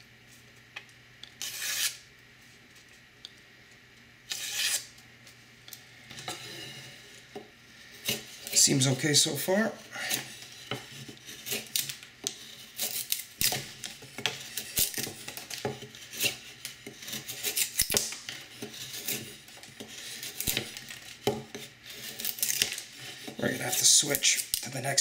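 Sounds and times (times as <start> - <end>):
knife shaving wood: 1.4 - 2.0, 4.3 - 5.0, 6.3 - 24.8.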